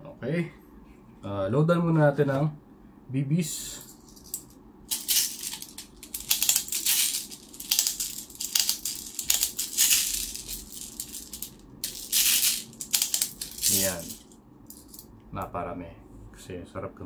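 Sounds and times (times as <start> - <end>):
plastic bbs rattling into magazine: 4.3 - 15.0.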